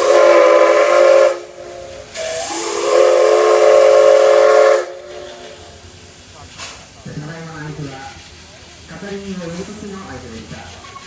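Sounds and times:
steam whistle blasts: 0.0 - 5.6.

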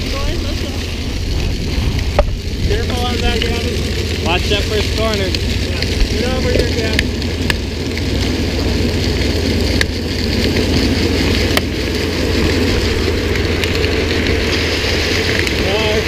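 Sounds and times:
car engine and tyre hiss: 0.0 - 16.0
wind rumble on microphone: 0.0 - 16.0.

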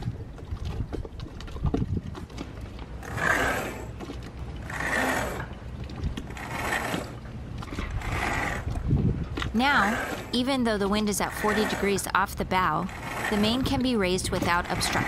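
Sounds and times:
rope rasping through blocks: 3.0 - 4.0, 4.6 - 5.6, 6.2 - 15.0.

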